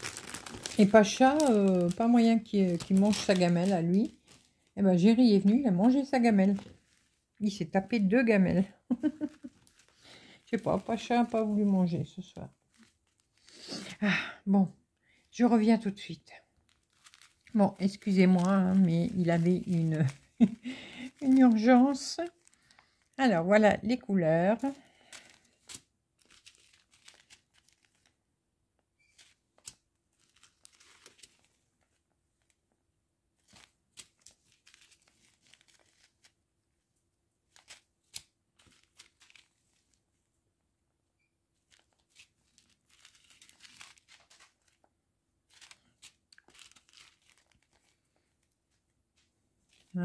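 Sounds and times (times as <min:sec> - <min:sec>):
plastic bags crinkling: 0:00.0 - 0:07.8, 0:08.5 - 0:14.0, 0:16.6 - 0:23.6, 0:24.5 - 0:28.2, 0:29.0 - 0:32.0, 0:33.4 - 0:36.3, 0:38.6 - 0:40.0, 0:41.7 - 0:44.9, 0:45.5 - 0:48.6.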